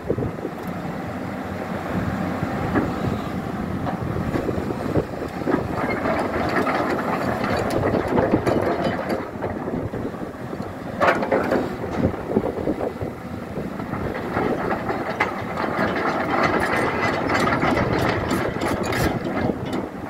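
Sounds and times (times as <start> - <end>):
diesel engine running: 0.0 - 20.0
clatter of track links: 5.3 - 10.0, 10.6 - 12.2, 13.8 - 20.0.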